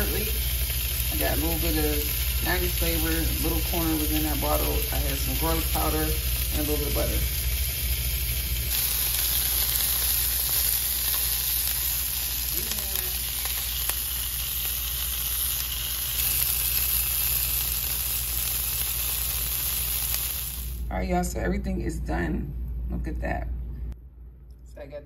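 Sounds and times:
sausage sizzling in a pan: 0:00.0 - 0:20.9.

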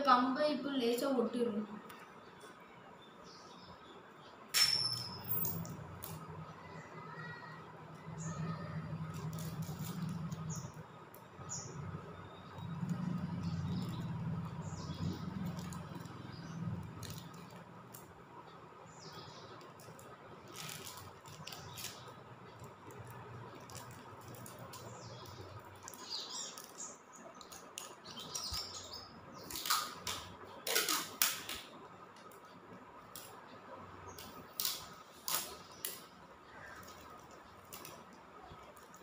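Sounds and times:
packing tape ripping off roll: 0:08.9 - 0:10.7, 0:19.7 - 0:26.8, 0:29.4 - 0:31.7, 0:34.2 - 0:36.1.

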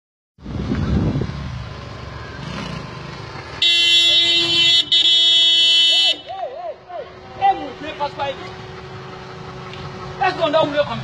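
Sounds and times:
motor vehicle rumble: 0:00.4 - 0:11.0
vehicle horn blaring: 0:03.6 - 0:06.4.

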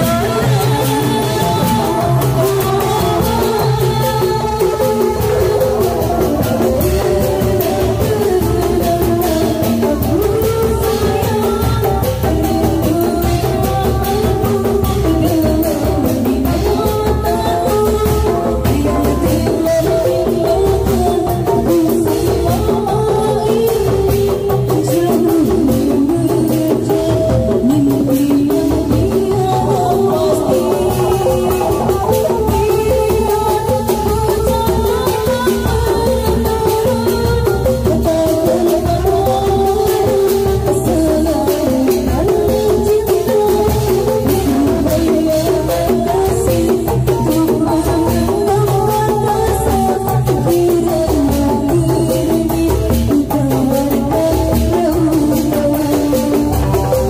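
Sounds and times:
procession music over loudspeakers: 0:00.0 - 0:23.0
hand drum strikes: 0:00.0 - 0:57.0.

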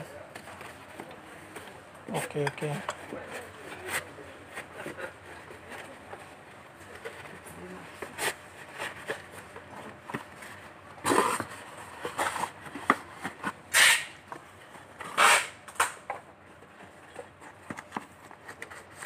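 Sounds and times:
cardboard scraping and rustling: 0:02.2 - 0:15.5.

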